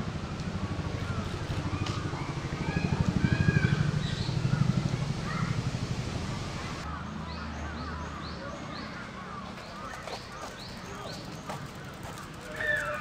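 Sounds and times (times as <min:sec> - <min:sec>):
faint wavering bird calls: 0:01.0 - 0:05.6.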